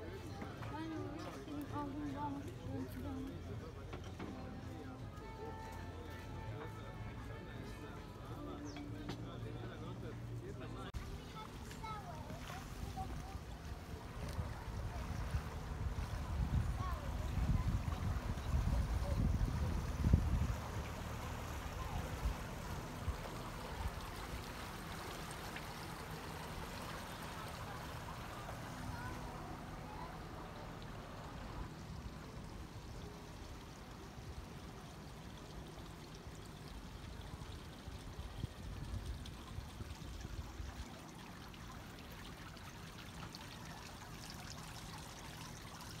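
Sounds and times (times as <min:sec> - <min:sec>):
water lapping along quay: 0:00.0 - 0:46.0
wind buffeting microphone: 0:14.2 - 0:20.9.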